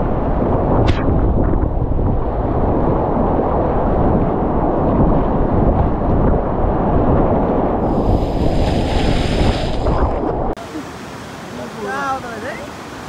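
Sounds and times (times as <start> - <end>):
wind rumbling on microphone: 0.0 - 10.6
rushing whitewater: 10.6 - 13.0.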